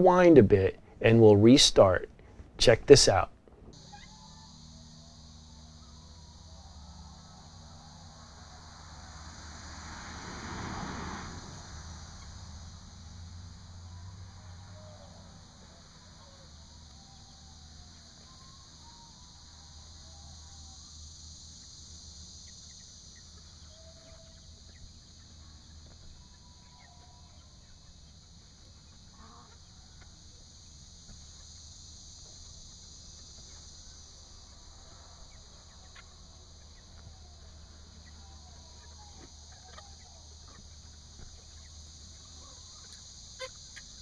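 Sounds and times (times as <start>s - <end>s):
steady high hiss: 0.0s - 44.0s
chickens clucking: 41.4s - 44.0s.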